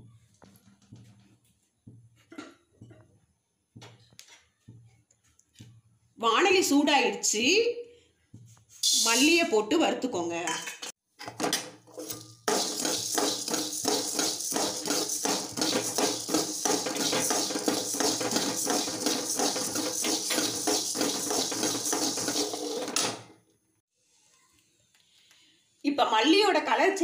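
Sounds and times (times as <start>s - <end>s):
metal spoon scraping pan: 11.9s - 23.2s
seeds rattling and hissing: 12.5s - 22.8s.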